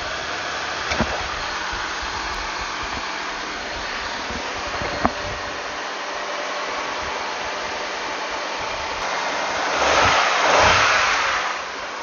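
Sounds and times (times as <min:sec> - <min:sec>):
car engine idling: 0:00.0 - 0:12.0
loud rushing noise: 0:08.1 - 0:12.0.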